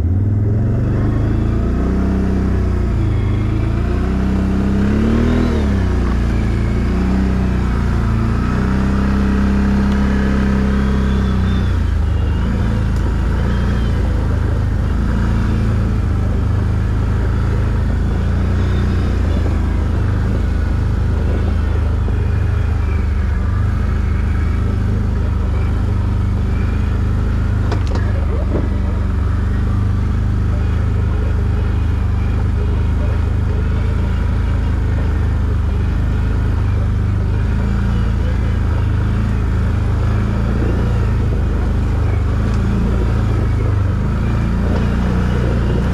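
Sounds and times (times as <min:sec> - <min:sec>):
quad bike engine droning: 0:00.0 - 0:45.9.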